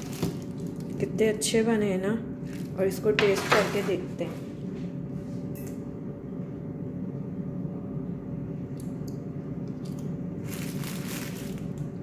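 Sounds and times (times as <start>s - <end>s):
air fryer fan humming: 0.0s - 12.0s.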